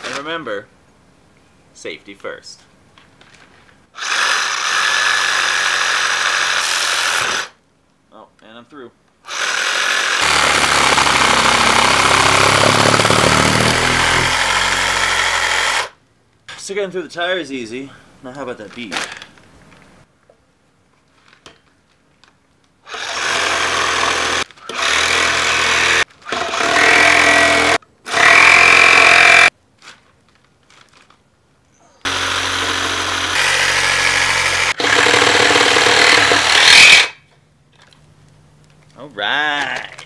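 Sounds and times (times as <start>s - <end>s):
reciprocating saw cutting metal: 9.3s - 15.9s, 23.0s - 29.5s, 32.1s - 37.2s.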